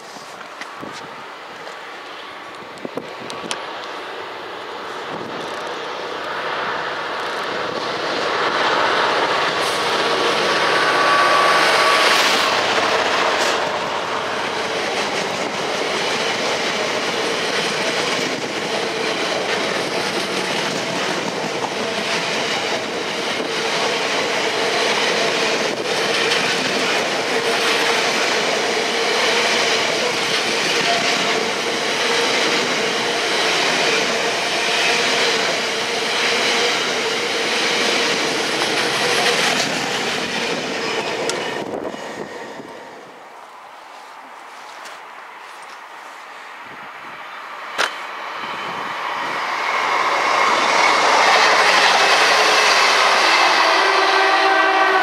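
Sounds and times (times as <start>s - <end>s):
diesel locomotive engine passing: 0.0s - 55.0s
wheels clicking over rail joints: 12.2s - 42.0s, 47.7s - 48.1s.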